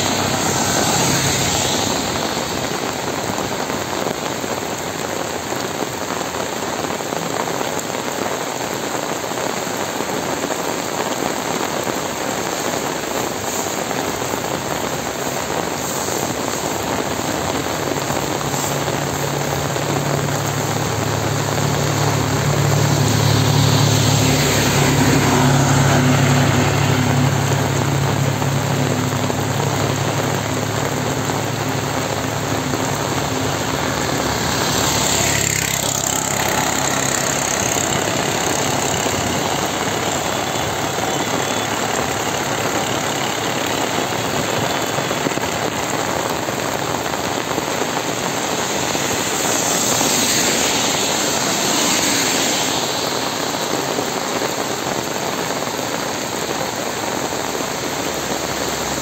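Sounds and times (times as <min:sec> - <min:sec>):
heavy rain: 0:00.0 - 0:59.0
motor engine humming: 0:17.7 - 0:46.6.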